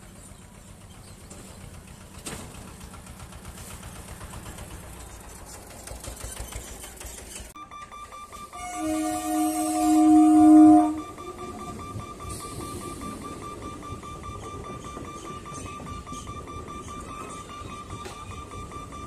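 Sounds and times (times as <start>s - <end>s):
diesel three-wheeler clattering past: 0.0s - 7.6s
train horn held tones: 8.6s - 12.5s.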